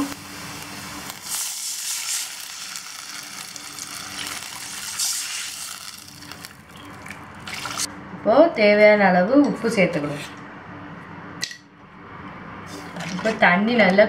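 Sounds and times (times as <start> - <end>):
water sizzling in hot oil: 0.0 - 7.9.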